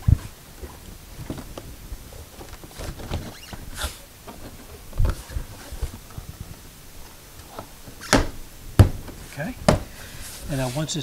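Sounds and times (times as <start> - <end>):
plastic scraping and rustling: 0.0 - 11.0
small knocks on plastic panel: 8.8 - 9.9.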